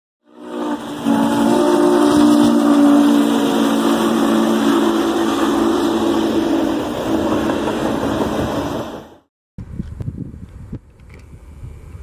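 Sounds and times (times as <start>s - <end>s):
steam locomotive chime whistle: 0.2s - 6.9s
rush of passing train: 0.2s - 9.3s.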